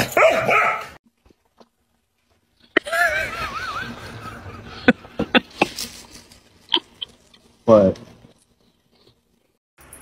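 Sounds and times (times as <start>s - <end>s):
person laughing in a high voice: 2.8s - 5.8s.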